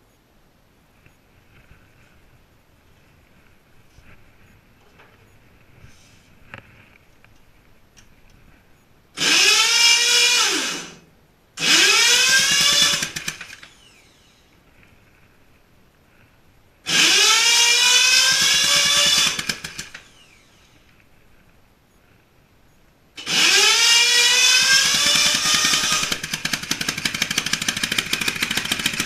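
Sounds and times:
electric motor whirring: 11.6 - 14.4, 16.9 - 20.8, 23.2 - 29.0.

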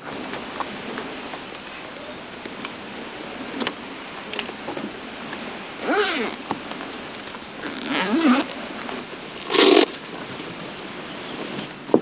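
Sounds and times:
bag clicks and rustles: 7.2 - 8.5, 9.4 - 10.0.

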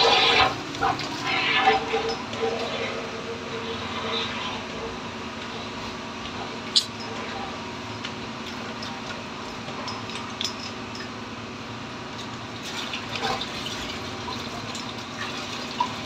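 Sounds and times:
water jetting through hose: 0.0 - 4.7
motor hum: 0.0 - 16.0.

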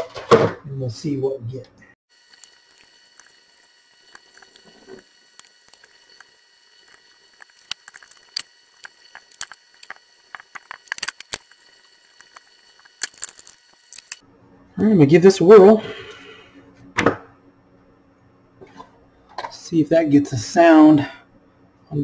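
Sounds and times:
faint high whine: 0.7 - 18.5.

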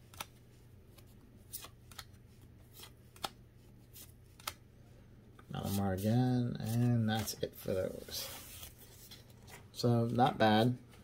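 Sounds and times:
cards snapping off stack: 1.5 - 2.2, 2.8 - 3.4, 4.0 - 4.6.

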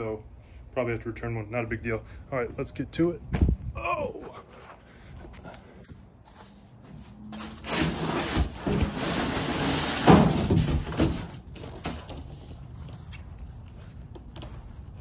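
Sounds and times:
foam board scraping against sheets: 7.4 - 12.0.

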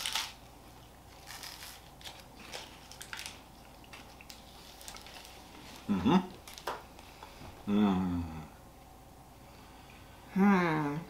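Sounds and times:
wrapper crinkling: 0.0 - 0.4, 1.1 - 6.8.

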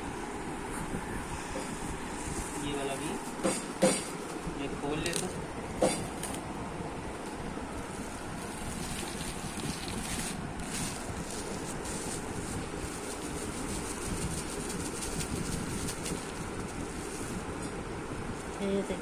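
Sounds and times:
steady rushing noise: 0.0 - 19.0
plastic bag crinkling: 7.1 - 17.4
spice powder shaken into jar: 8.0 - 17.4.

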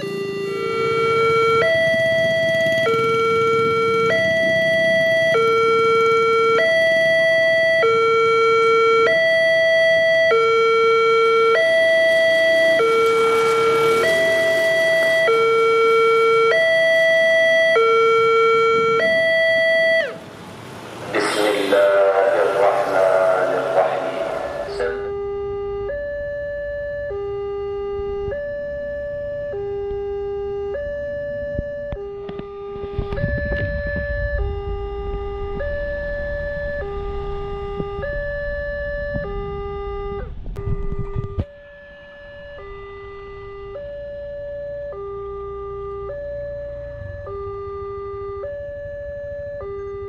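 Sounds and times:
level crossing two-tone alarm: 0.0 - 20.2, 21.7 - 50.0.

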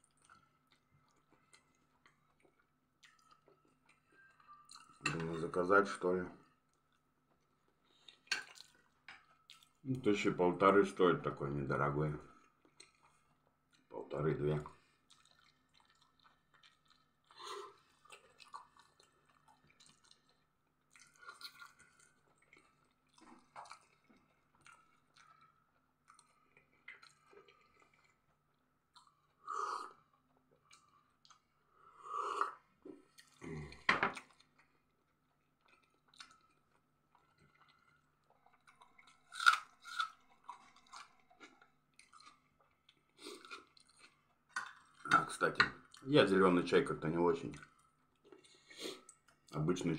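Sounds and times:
chewing and crunching food: 0.0 - 49.9
sip from a glass: 48.7 - 49.1.

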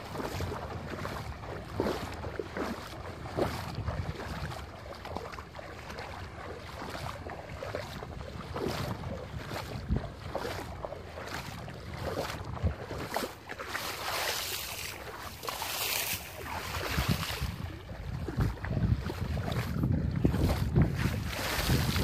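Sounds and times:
footsteps splashing through water: 0.0 - 22.0
wind noise on microphone: 0.0 - 22.0.

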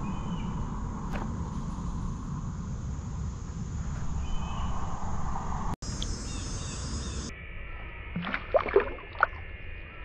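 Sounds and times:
low outdoor rumble: 0.0 - 6.4
fish splashing in water: 8.2 - 9.4.

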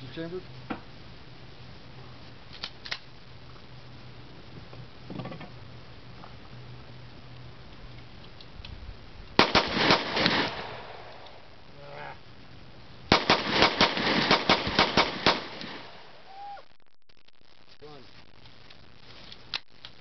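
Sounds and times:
pistol shots: 9.4 - 11.2, 13.1 - 16.1.

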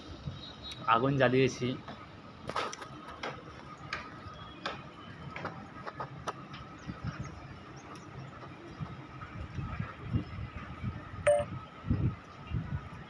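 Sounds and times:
faint steady high tone: 11.2 - 11.5.

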